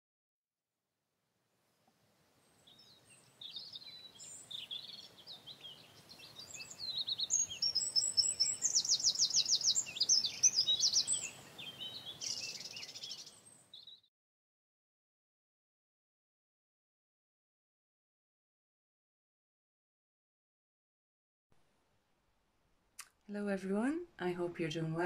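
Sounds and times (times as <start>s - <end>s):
songbird chirping and trilling: 2.4s - 14.1s.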